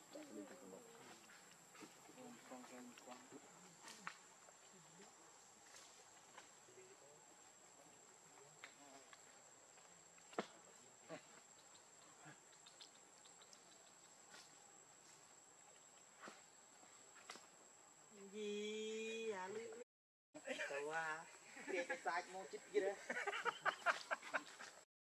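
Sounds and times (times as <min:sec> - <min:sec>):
high-pitched insect trill: 0:08.0 - 0:19.7.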